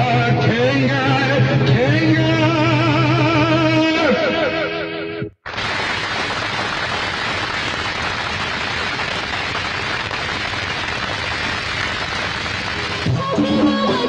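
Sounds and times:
crowd applauding: 0:05.4 - 0:14.0.

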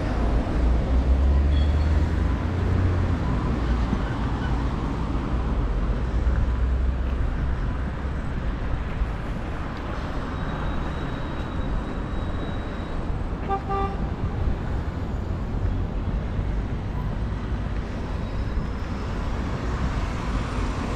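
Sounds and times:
road traffic hum: 0:00.0 - 0:20.9.

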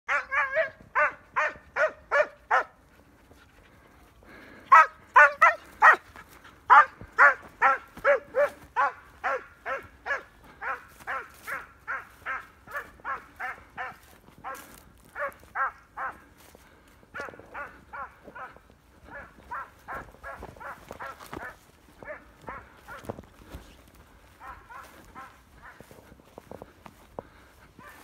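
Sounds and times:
dog barking: 0:00.1 - 0:02.8, 0:04.7 - 0:06.1, 0:06.7 - 0:16.3, 0:17.1 - 0:23.1, 0:24.4 - 0:26.0, 0:27.8 - 0:28.0.

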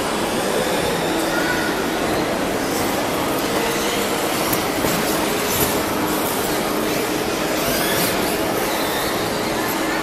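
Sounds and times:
large hall noise: 0:00.0 - 0:10.0
rc cars whirring: 0:02.6 - 0:10.0.

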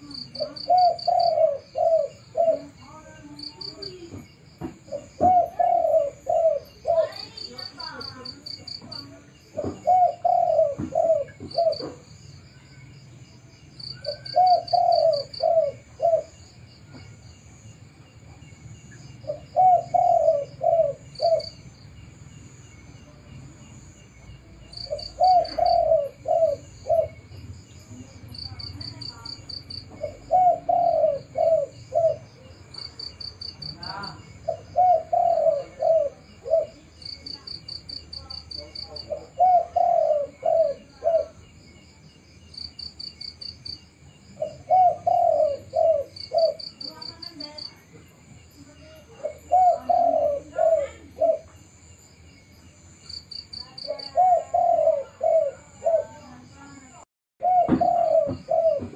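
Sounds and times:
dove cooing: 0:00.0 - 0:12.1, 0:13.8 - 0:16.6, 0:19.2 - 0:21.7, 0:24.6 - 0:41.5, 0:44.3 - 0:47.9, 0:48.6 - 0:51.6, 0:53.4 - 0:56.5, 0:57.4 - 0:58.9.

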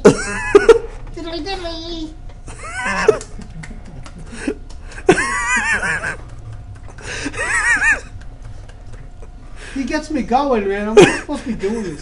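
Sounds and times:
high-pitched laughter: 0:02.5 - 0:06.4, 0:07.2 - 0:08.2.

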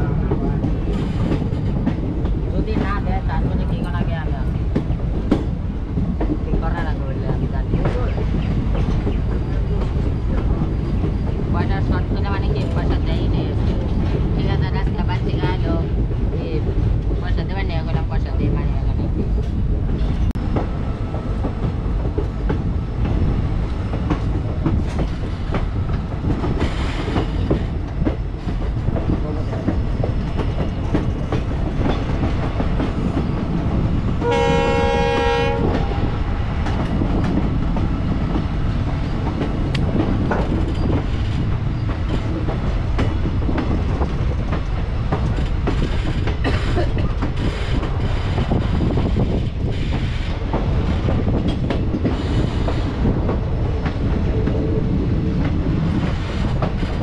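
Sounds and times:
train wheels rumbling on rail: 0:00.0 - 0:57.0
train horn: 0:34.2 - 0:36.0.

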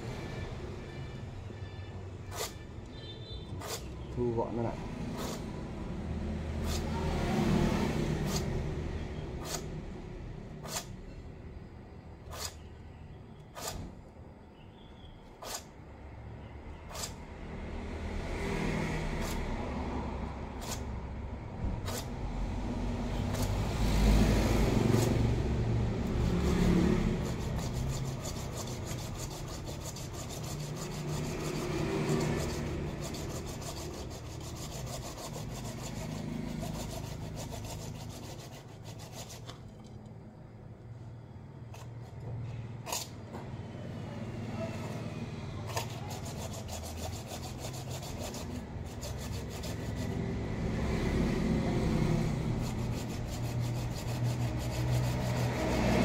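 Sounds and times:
hand saw scraping through roots: 0:02.3 - 0:02.6, 0:03.6 - 0:05.6, 0:06.6 - 0:08.6, 0:09.4 - 0:09.8, 0:10.6 - 0:11.0, 0:12.3 - 0:12.6, 0:13.5 - 0:13.9, 0:15.4 - 0:15.8, 0:16.9 - 0:17.2, 0:19.2 - 0:19.5, 0:20.5 - 0:20.9, 0:21.8 - 0:22.2, 0:23.2 - 0:39.8, 0:42.8 - 0:43.2, 0:45.6 - 0:50.4, 0:52.1 - 0:56.0.

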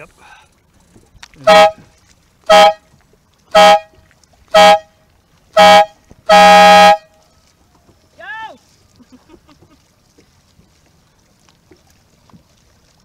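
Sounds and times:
air horn blasts: 0:01.4 - 0:02.8, 0:03.5 - 0:07.1.

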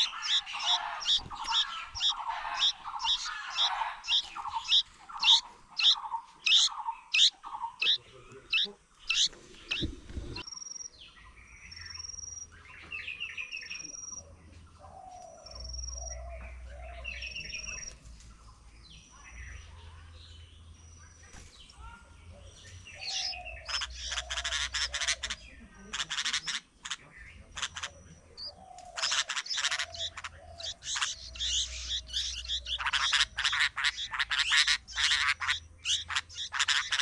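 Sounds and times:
harsh chirping: 0:00.0 - 0:10.8, 0:23.0 - 0:37.0
birds calling: 0:00.0 - 0:37.0.

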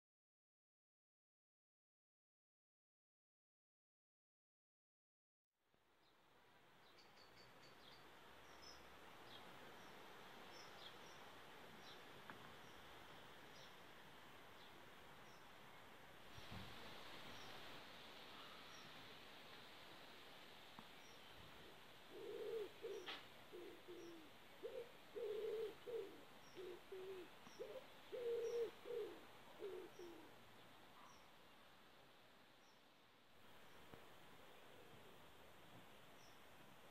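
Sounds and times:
steady background hiss: 0:05.7 - 0:36.9
small birds chirping: 0:06.8 - 0:13.8, 0:17.2 - 0:19.0, 0:20.8 - 0:21.4, 0:22.1 - 0:31.8, 0:36.0 - 0:36.5
pigeon cooing: 0:21.6 - 0:30.4.

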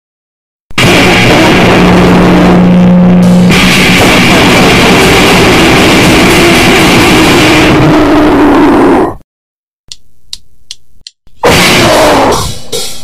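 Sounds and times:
distorted guitar and drums: 0:00.7 - 0:08.6, 0:11.4 - 0:13.0
low hum: 0:00.8 - 0:06.5.

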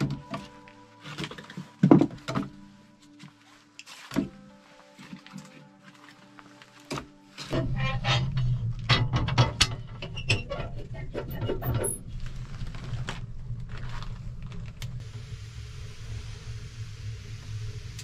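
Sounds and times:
low rumble: 0:07.6 - 0:18.0
steady hiss: 0:15.0 - 0:18.0.

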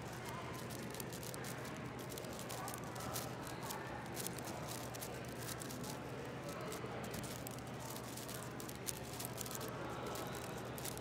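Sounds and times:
busy hall hum: 0:00.0 - 0:11.0
puzzle cube clicking and rattling: 0:07.1 - 0:11.0.

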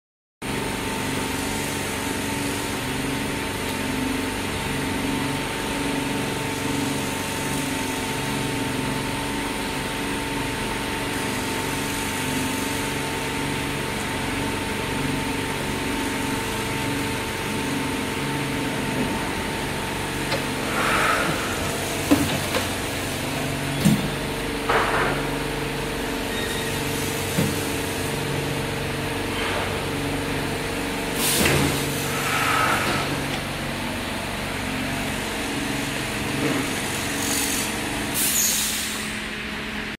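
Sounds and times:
workshop machinery humming: 0:00.4 - 0:39.9
short hisses: 0:20.6 - 0:21.6.

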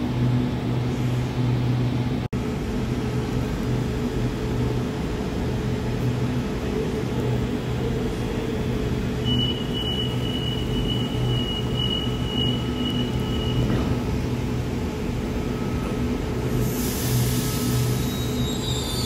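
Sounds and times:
train equipment low hum: 0:00.0 - 0:18.6
train air hiss: 0:16.5 - 0:19.0.

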